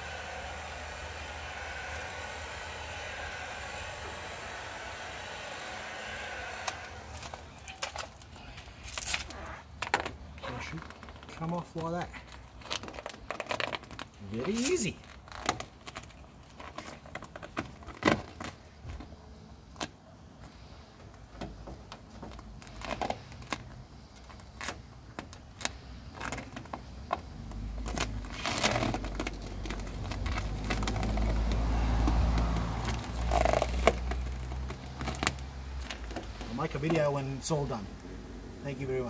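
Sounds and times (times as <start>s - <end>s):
sticker peeling off crackling: 6.6s - 18.7s, 21.9s - 37.1s.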